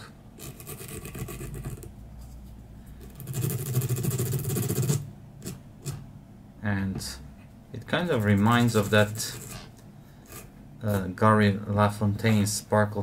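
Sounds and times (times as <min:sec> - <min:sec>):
brush rasping over dubbing: 0:08.0 - 0:09.8.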